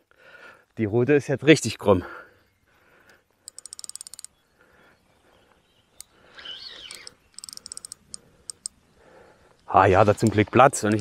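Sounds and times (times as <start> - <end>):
fishing reel drag ticking: 3.4 - 4.3, 6.7 - 8.8.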